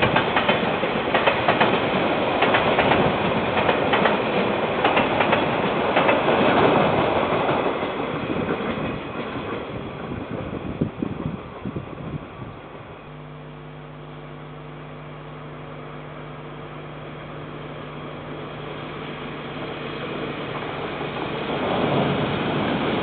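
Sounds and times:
passing train rumble: 0.0 - 13.4, 16.1 - 23.0
locomotive engine hum: 0.0 - 23.0
rushing noise: 18.4 - 23.0.

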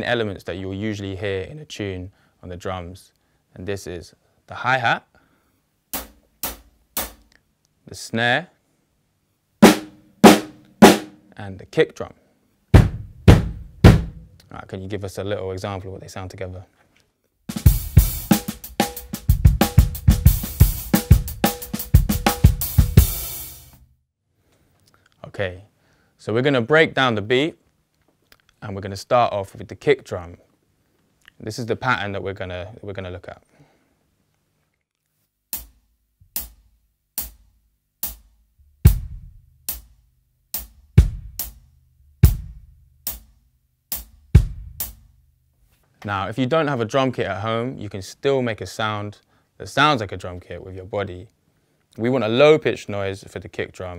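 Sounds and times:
drum kit groove: 5.9 - 7.3, 9.6 - 11.2, 12.7 - 14.4, 17.5 - 23.8, 35.5 - 45.3
deep bass drum hits: 12.8 - 14.3, 44.4 - 45.0.

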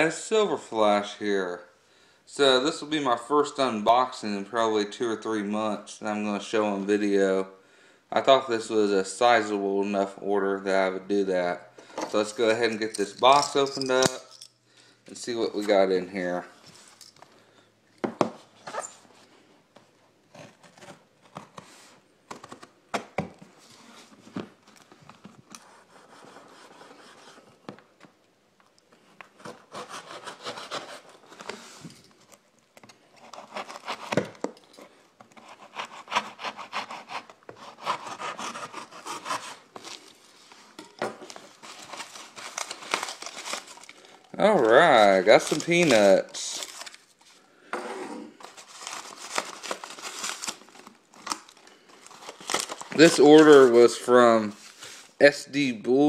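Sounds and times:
tape and cardboard tearing: 29.4 - 31.4, 33.1 - 34.4, 35.3 - 40.0.

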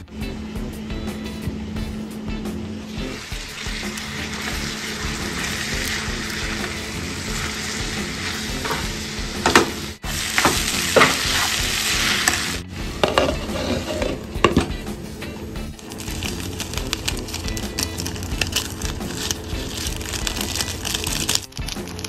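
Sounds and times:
vegetables sizzling in a pan: 2.9 - 14.7, 15.4 - 22.0
spatula scraping and clacking: 10.4 - 14.8.

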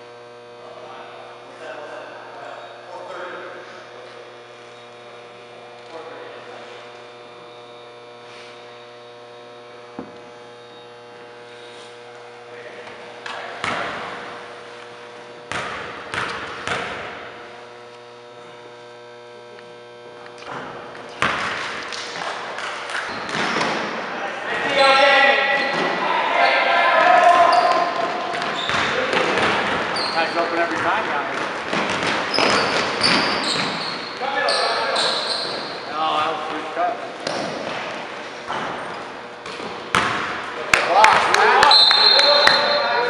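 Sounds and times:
electrical hum: 0.0 - 43.0
basketball bouncing on court: 13.6 - 14.4, 15.4 - 17.3, 20.5 - 24.0, 27.5 - 34.2, 37.2 - 40.5.

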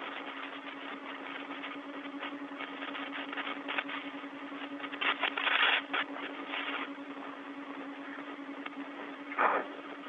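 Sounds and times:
rush of radio noise: 0.0 - 7.0, 9.3 - 9.8
low hum: 0.0 - 10.0
radio hiss: 0.0 - 10.0.

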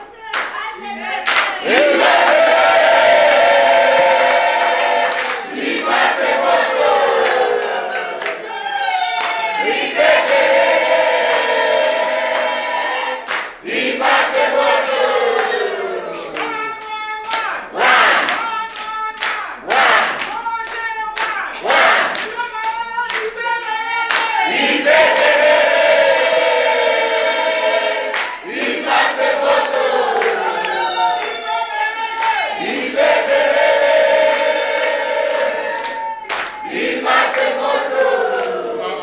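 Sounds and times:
hand clapping: 0.3 - 2.6, 4.2 - 5.5, 7.1 - 8.4, 9.0 - 10.6, 13.2 - 13.6, 15.4 - 24.6, 28.1 - 28.5, 29.3 - 33.4, 34.2 - 39.0
group singing in chorus: 0.8 - 16.7, 17.4 - 18.6, 19.6 - 20.4, 21.4 - 22.3, 23.3 - 39.0.

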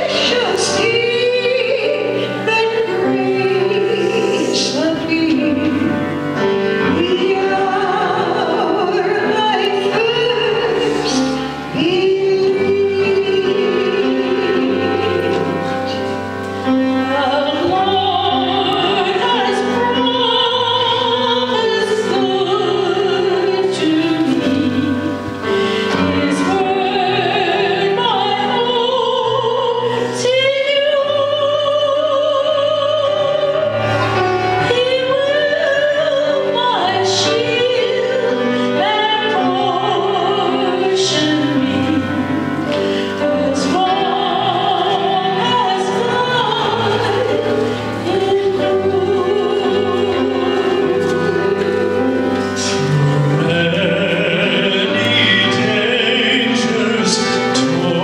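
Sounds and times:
held instrumental accompaniment: 0.0 - 58.0
person singing with vibrato: 0.0 - 58.0.

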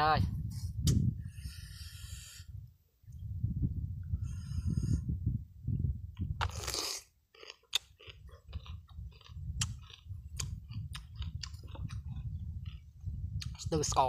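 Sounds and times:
wind rumble on microphone: 0.0 - 6.7, 8.1 - 14.0
mouth clicks: 6.3 - 13.6
crunchy chewing: 6.4 - 13.7.

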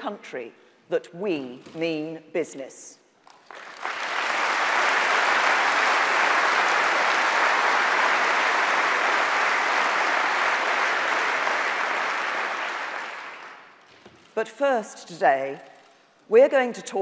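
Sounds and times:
large audience applauding: 3.3 - 13.8.

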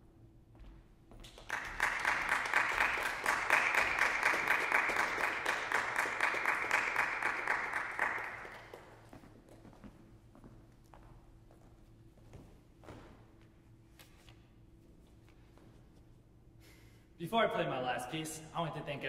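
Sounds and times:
audience applauding: 1.3 - 9.1.

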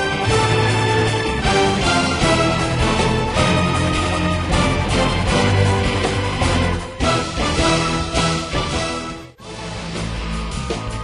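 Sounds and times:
music with heavy bass line: 0.0 - 11.0.

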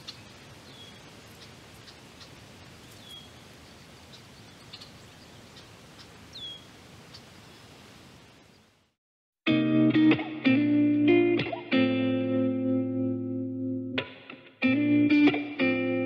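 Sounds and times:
bird chirping: 0.0 - 7.7
steady background hiss: 0.0 - 9.0.

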